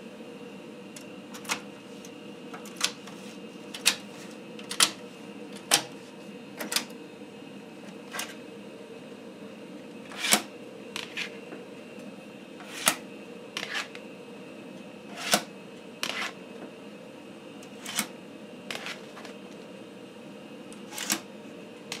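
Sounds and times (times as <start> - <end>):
machine hum: 0.0 - 22.0
diskettes handled light clicks: 3.8 - 5.0
floppy drive eject clacks: 3.8 - 5.0, 5.6 - 6.0, 6.6 - 7.0.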